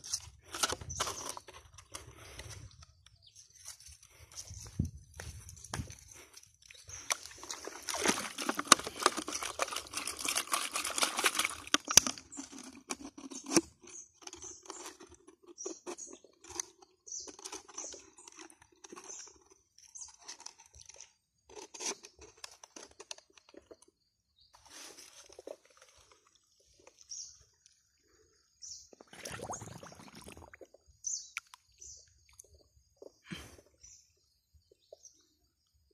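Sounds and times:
crunching handling noise: 0.0s - 27.8s.

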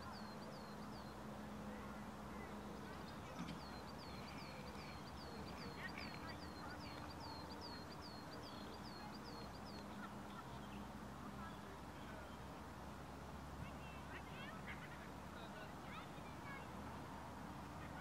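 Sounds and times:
bird chirps: 0.0s - 10.8s.

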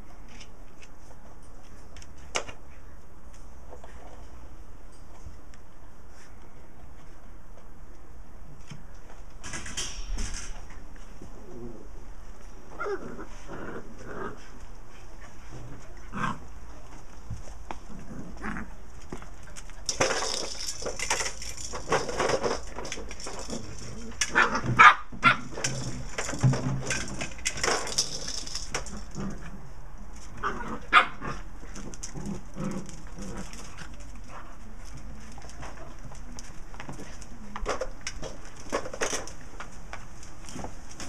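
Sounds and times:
dogs growling: 12.8s - 14.6s
dogs barking and yapping: 19.5s - 26.3s, 30.3s - 34.6s.

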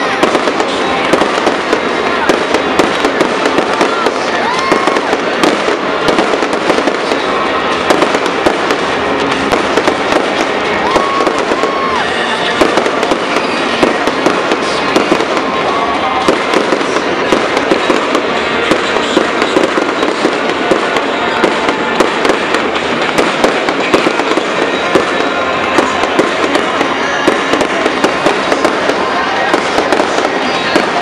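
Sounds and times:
fireworks bangs and crackling: 0.0s - 31.0s.

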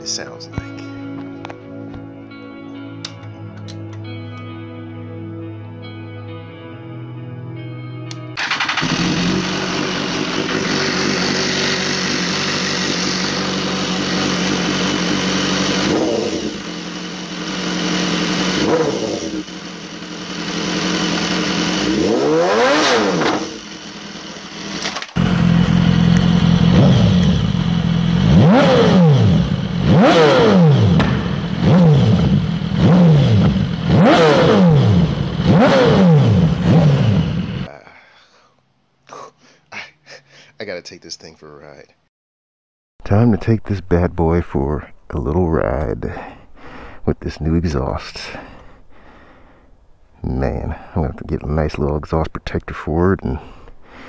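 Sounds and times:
motorcycle engine idling: 8.4s - 22.1s, 23.4s - 28.6s, 29.2s - 35.7s
motorcycle engine revving: 8.4s - 37.7s.

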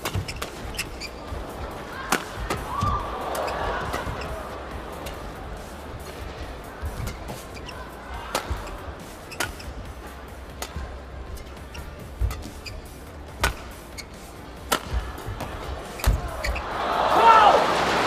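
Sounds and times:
badminton racket hitting shuttlecock: 0.0s - 4.4s, 6.9s - 9.7s, 10.5s - 16.6s
shoes squeaking on court: 0.0s - 16.9s
crowd murmur: 1.2s - 12.2s, 14.2s - 18.0s.

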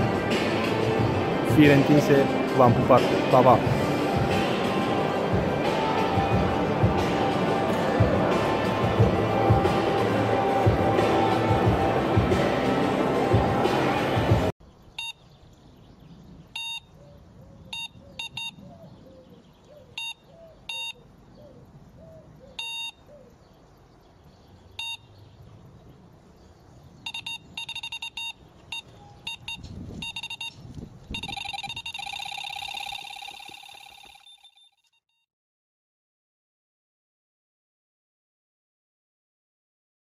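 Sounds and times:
held electronic tone: 17.8s - 18.6s, 20.0s - 21.0s, 22.6s - 23.0s, 27.1s - 34.9s
short digital blips: 27.1s - 34.9s.

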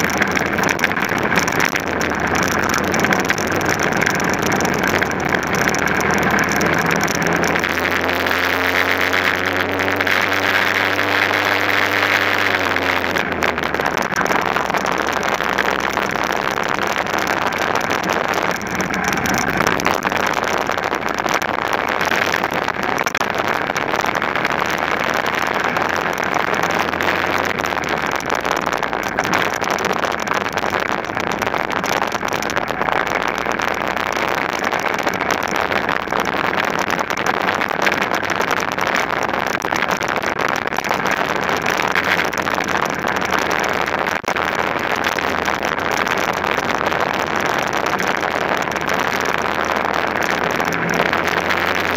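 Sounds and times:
kart engine running hard: 0.0s - 20.9s, 21.7s - 32.0s.

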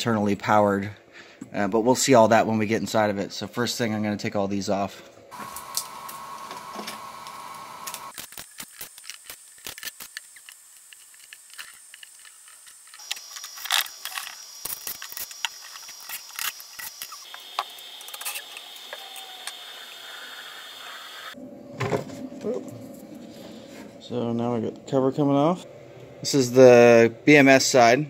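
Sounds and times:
faint high whine: 9.0s - 28.0s.

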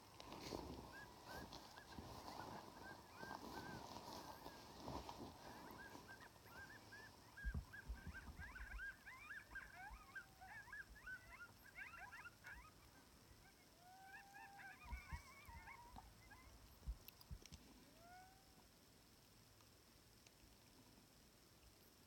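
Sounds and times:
electronic coyote yips and yelps: 0.8s - 16.6s, 17.9s - 18.5s.

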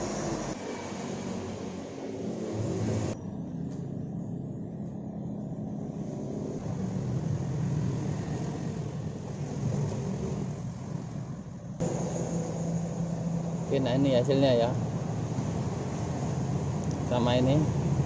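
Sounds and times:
vehicle engine rumbling: 0.0s - 18.0s.

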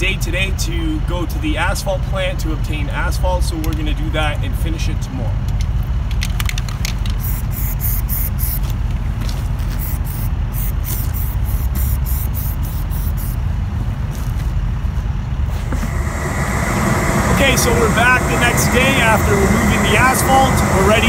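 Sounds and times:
steady low rumble: 0.0s - 21.0s
aerosol spray hisses: 9.8s - 13.4s.

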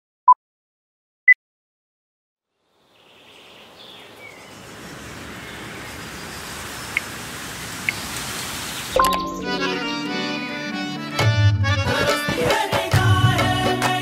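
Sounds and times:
steady rushing hiss: 3.7s - 9.0s
short high chirps: 9.0s - 9.7s.

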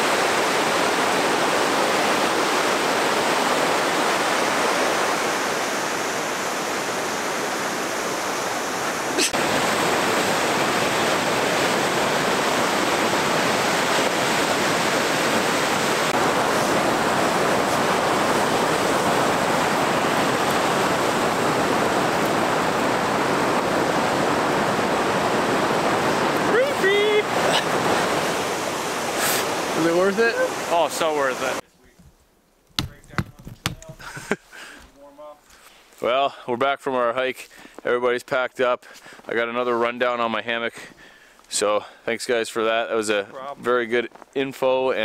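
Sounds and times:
waterfall rushing: 0.0s - 31.6s.

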